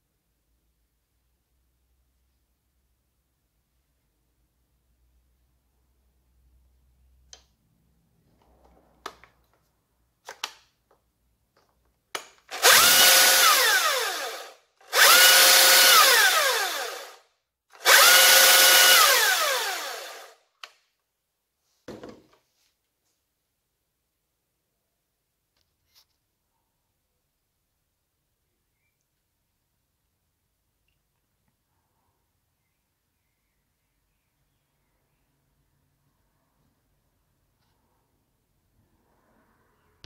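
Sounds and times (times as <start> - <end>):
electric chainsaw revving: 12.5 - 20.4.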